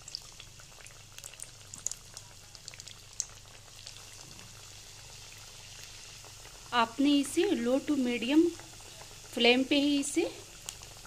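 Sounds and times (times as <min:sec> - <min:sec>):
small crackles and pops: 0:00.0 - 0:06.8, 0:08.4 - 0:09.4, 0:10.4 - 0:11.0
oil bubbling: 0:00.0 - 0:11.0.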